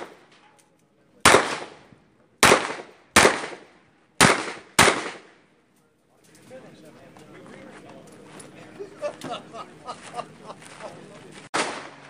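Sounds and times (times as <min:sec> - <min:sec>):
revolver gunshots: 0:00.0 - 0:00.3, 0:01.2 - 0:05.4, 0:11.5 - 0:12.0.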